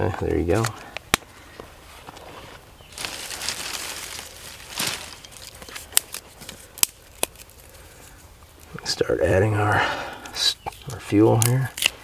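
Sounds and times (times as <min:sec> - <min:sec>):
crinkling handling noise: 0:00.1 - 0:08.9.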